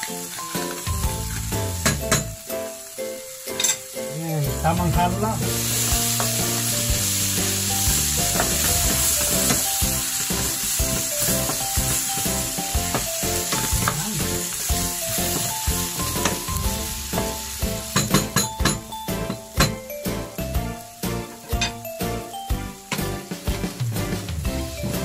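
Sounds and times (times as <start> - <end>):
vegetables sizzling in a frying pan: 0.0 - 19.8, 24.3 - 25.0
spatula knocking against a pan: 17.2 - 19.8.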